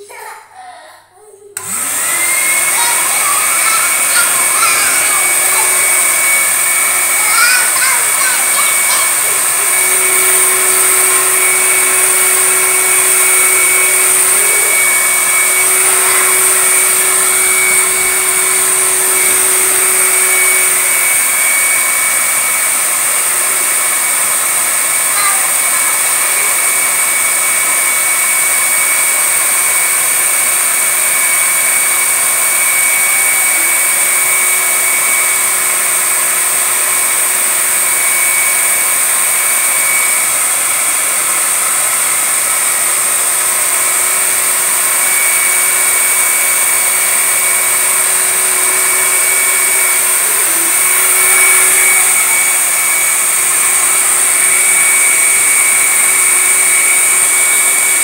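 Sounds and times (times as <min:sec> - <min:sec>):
air rushing from blower: 0:01.6 - 0:58.0
vacuum cleaner motor whine: 0:01.6 - 0:58.0
lower hum: 0:09.1 - 0:21.6.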